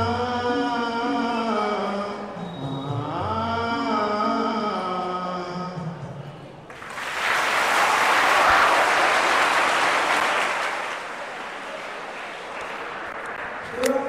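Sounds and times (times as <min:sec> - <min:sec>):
audience applauding: 0:06.7 - 0:14.0.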